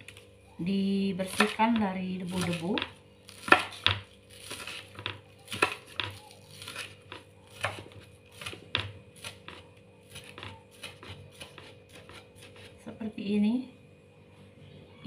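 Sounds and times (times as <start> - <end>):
knife chopping on wooden board: 1.2 - 12.8.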